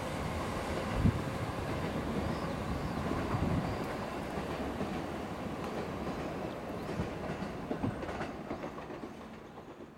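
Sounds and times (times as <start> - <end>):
wind rumble on microphone: 0.8 - 3.8
train wheels clicking over rail joints: 3.0 - 9.9.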